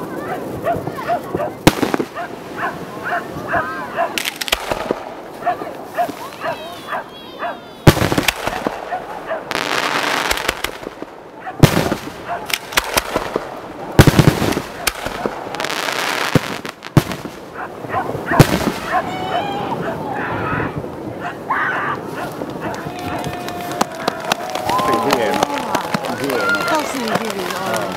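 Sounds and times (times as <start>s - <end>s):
crackling hiss: 0.5s - 6.5s, 7.8s - 19.4s, 22.0s - 27.9s
firework shells bursting: 7.9s - 8.8s, 9.5s - 17.4s.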